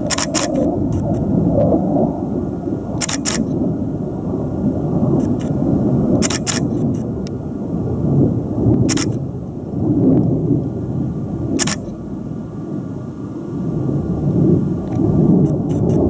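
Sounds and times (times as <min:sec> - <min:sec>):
camera shutter clicking: 0:00.0 - 0:01.2, 0:03.0 - 0:03.6, 0:06.2 - 0:07.1, 0:08.9 - 0:09.2, 0:11.6 - 0:12.0
low rumble: 0:00.0 - 0:16.0.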